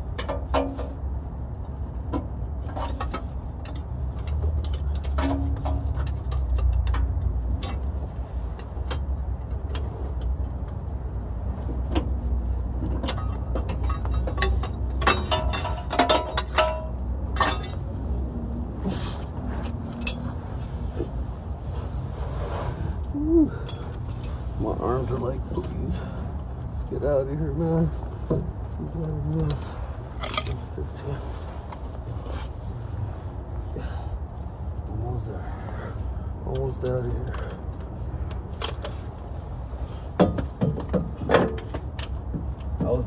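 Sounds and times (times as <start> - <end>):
metal tools clinking and knocking: 2.7 - 7.9, 12.8 - 17.9, 19.6 - 20.4, 29.4 - 30.8.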